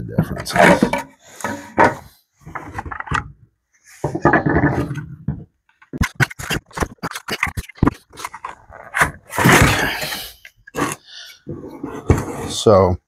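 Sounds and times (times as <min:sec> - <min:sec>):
plastic scraping on plastic: 0:04.0 - 0:12.7.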